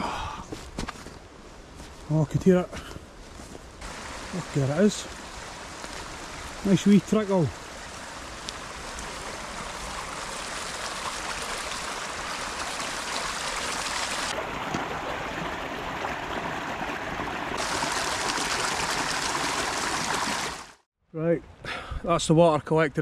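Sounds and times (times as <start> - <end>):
stream trickling over stones: 3.8 - 20.8.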